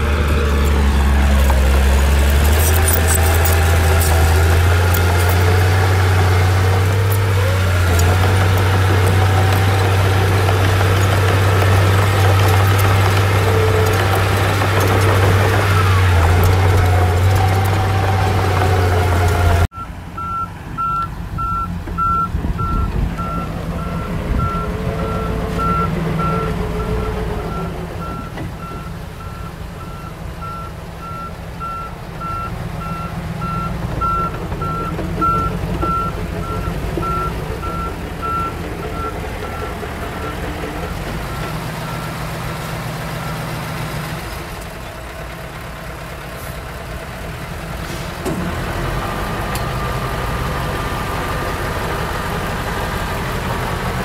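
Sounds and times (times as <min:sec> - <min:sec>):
heavy diesel machinery running: 0:00.0 - 0:54.0
reversing alarm beeping: 0:19.7 - 0:43.7.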